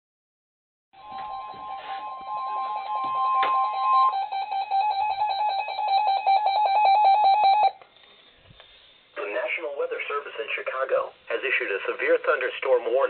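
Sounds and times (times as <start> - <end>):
high-pitched pulsing beeping: 1.0 - 7.8
steady alarm tone: 1.0 - 9.2.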